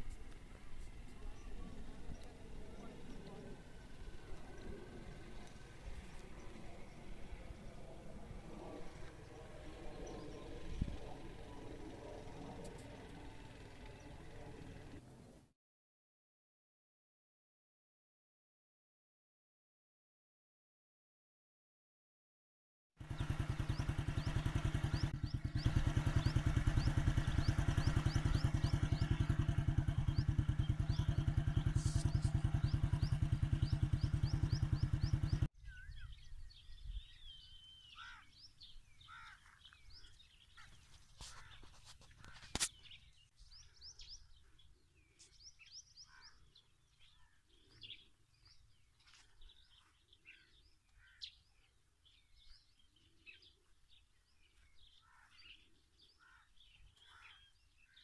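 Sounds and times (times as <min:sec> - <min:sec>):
engine running loudly: 0:00.2 - 0:15.1, 0:23.0 - 0:35.5
birds chirping and calling: 0:23.0 - 0:58.0.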